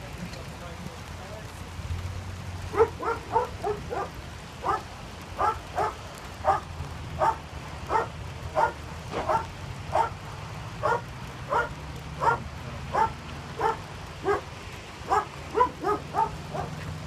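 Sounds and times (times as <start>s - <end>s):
dog barking: 2.7s - 10.2s, 10.8s - 16.9s.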